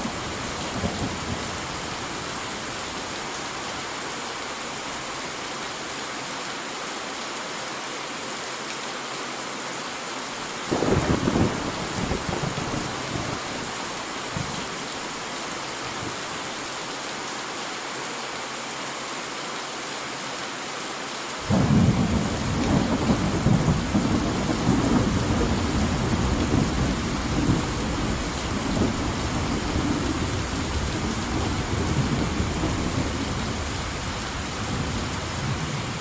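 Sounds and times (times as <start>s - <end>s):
steady rain hiss: 0.0s - 36.0s
deep rumble of thunder: 10.7s - 13.5s, 21.5s - 36.0s.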